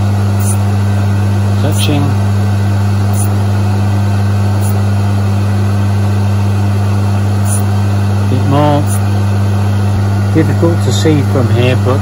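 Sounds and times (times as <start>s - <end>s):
grinding wheel hissing: 0.0s - 2.4s, 3.0s - 3.5s, 4.5s - 4.9s, 7.4s - 9.6s
grinder motor humming: 0.0s - 12.0s.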